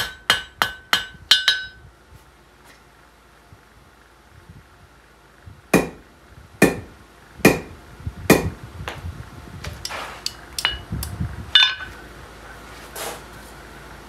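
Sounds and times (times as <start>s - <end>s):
hammer ringing on anvil: 0.0s - 1.8s, 11.6s - 11.9s
hammer striking steel: 0.0s - 1.8s, 5.8s - 6.0s, 6.6s - 6.9s, 7.5s - 8.6s, 10.2s - 10.9s, 11.6s - 11.9s.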